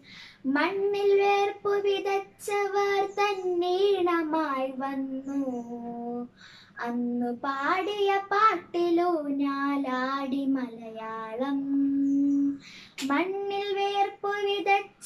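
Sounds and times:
girl singing unaccompanied: 0.0 - 15.0.

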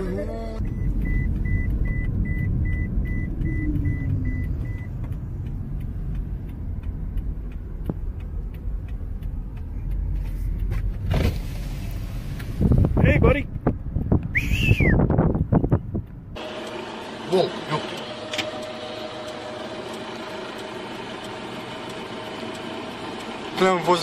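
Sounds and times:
car road noise rumble: 0.0 - 24.0
car warning chime beeping: 0.6 - 7.8, 15.7 - 24.0.

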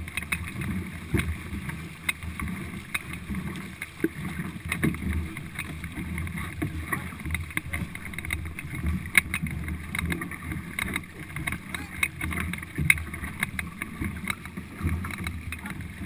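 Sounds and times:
paddles catching water: 0.0 - 16.0
water rushing along hull: 0.0 - 16.0.

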